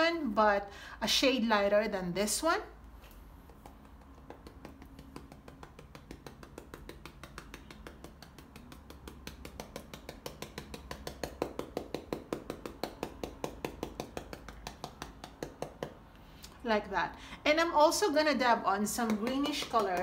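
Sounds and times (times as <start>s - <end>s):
bristle brush tapping on canvas: 3.4s - 16.1s, 19.0s - 20.0s.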